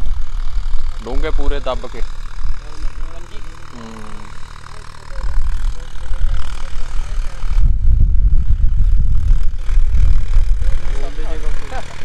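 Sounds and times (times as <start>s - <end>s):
distant tractor hum: 0.0s - 12.0s
wind rumble on microphone: 5.3s - 11.5s.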